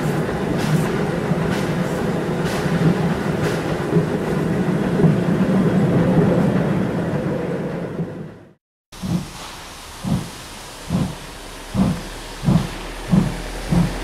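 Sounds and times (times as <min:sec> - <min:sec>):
steam train wheels rumbling on rails: 0:00.0 - 0:14.0
faint steam hiss: 0:09.0 - 0:14.0.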